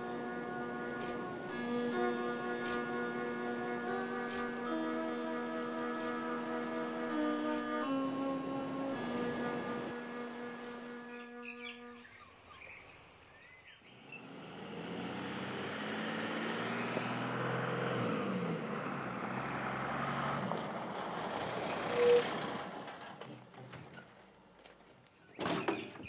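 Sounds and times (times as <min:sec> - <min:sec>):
bus engine running: 0:00.0 - 0:11.1, 0:14.2 - 0:24.4
bus horn toot: 0:00.0 - 0:12.1, 0:21.8 - 0:22.4
birds chirping: 0:10.5 - 0:14.3.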